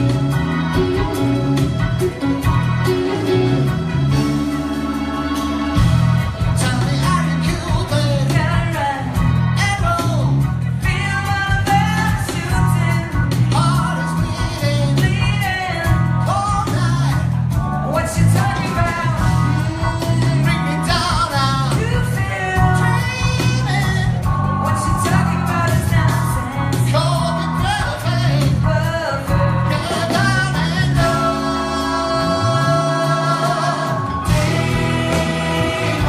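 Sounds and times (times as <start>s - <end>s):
guitar: 0.0s - 36.0s
repeating bass line: 0.0s - 36.0s
person singing: 17.9s - 36.0s.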